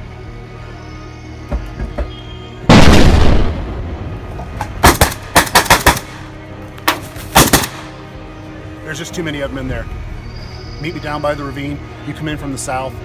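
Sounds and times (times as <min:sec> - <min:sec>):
background music: 0:00.0 - 0:13.0
rifle shots: 0:04.8 - 0:08.0.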